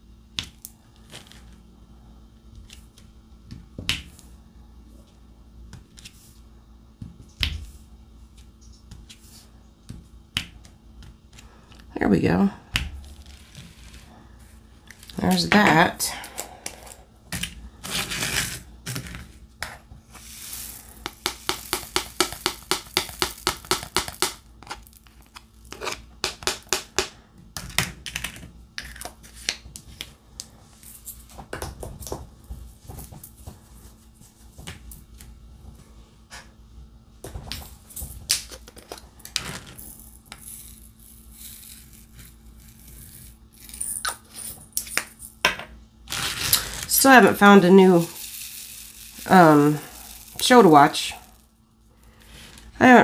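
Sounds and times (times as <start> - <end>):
drill pen tapping: 21.0 - 24.4.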